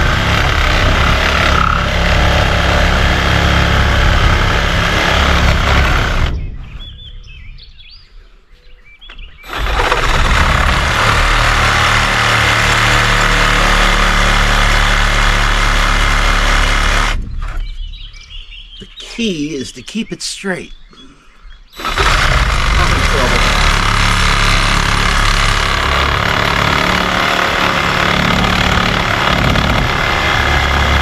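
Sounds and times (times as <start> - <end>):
reciprocating saw cutting wood: 0.0 - 6.5, 9.5 - 17.2, 21.8 - 31.0.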